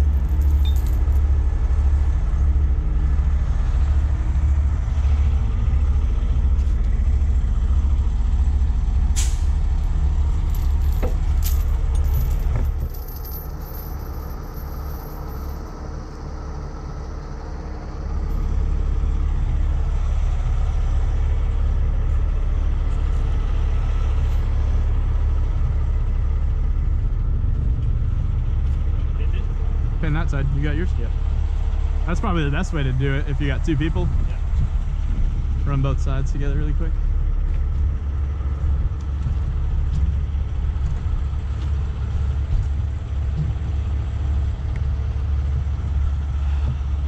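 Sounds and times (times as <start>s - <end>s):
diesel engine rumbling: 0.0s - 47.0s.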